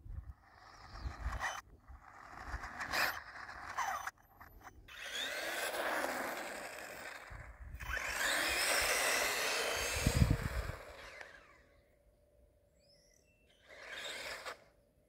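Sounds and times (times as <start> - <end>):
electric motor whine: 0.3 - 11.9, 12.8 - 14.8
tyres scraping on asphalt: 0.5 - 10.0.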